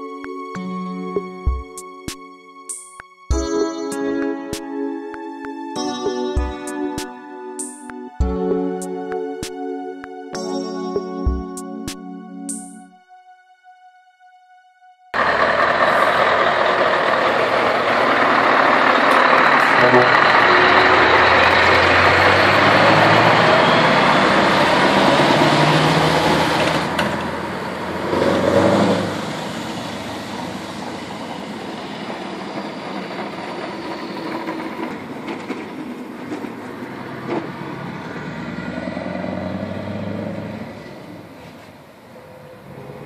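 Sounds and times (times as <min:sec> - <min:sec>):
truck diesel engine running: 0:15.2 - 0:33.9.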